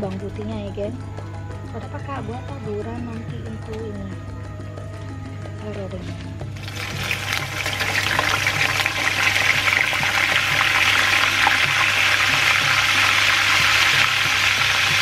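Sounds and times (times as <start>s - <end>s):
vegetables sizzling in hot oil: 6.6s - 15.0s.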